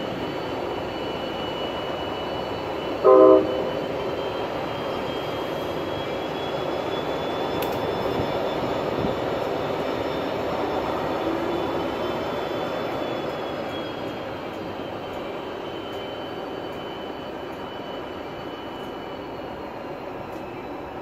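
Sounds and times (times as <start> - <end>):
thin high whines: 0.0 - 21.0
train rumbling on rails: 0.0 - 21.0.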